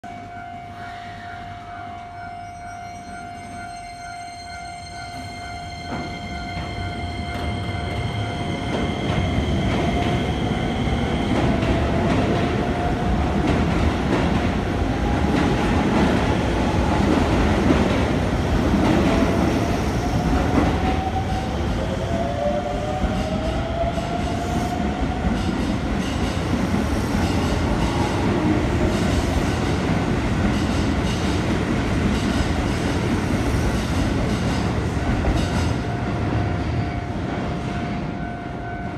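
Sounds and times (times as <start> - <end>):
train wheels clattering on rails: 5.8 - 21.5, 22.8 - 36.2.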